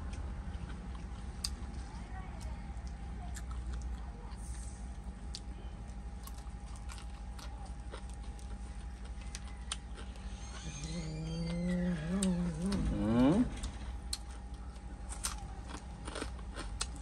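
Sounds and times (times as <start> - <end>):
low background hum: 0.0 - 17.0
chewing clicks: 2.4 - 4.4, 13.6 - 17.0.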